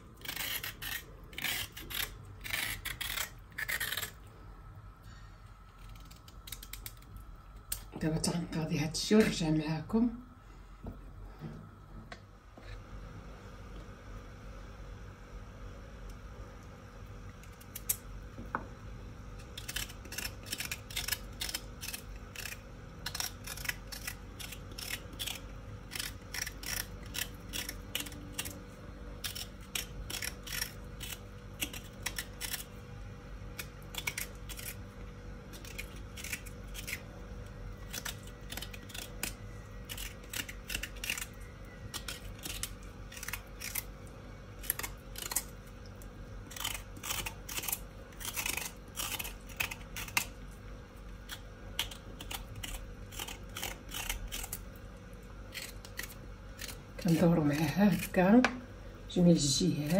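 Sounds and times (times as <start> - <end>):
knife scraping vegetable skin: 0.0 - 4.2, 19.4 - 32.8, 33.5 - 37.1, 37.8 - 44.0, 44.6 - 45.6, 46.4 - 50.4, 51.2 - 54.7, 55.5 - 58.2.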